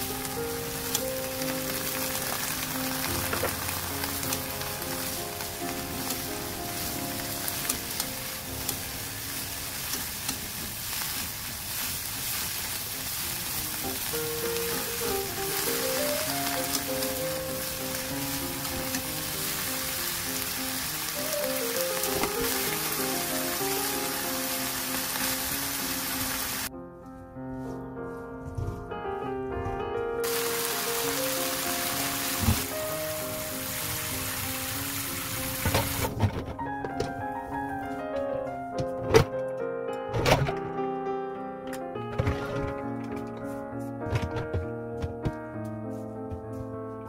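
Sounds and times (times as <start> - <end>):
soft background music: 0.0 - 10.5, 13.0 - 47.0
food sizzling in a pan: 0.0 - 26.7, 30.2 - 36.1
utensils clicking against pan: 7.4 - 8.9, 9.8 - 11.5.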